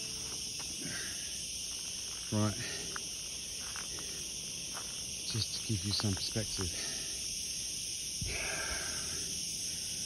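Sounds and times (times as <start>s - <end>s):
insects chorus: 0.0s - 10.0s.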